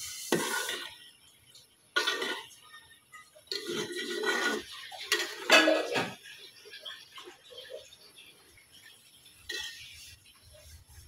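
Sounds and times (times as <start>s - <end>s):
metal spoon scraping a pot: 0.2s - 1.1s, 2.0s - 2.6s, 3.5s - 7.9s, 9.5s - 10.7s.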